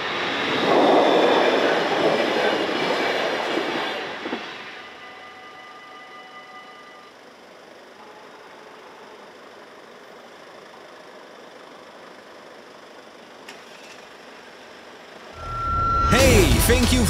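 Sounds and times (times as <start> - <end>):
faint high ringing tone: 4.5 - 16.8
traffic and engines idling: 7.2 - 17.0.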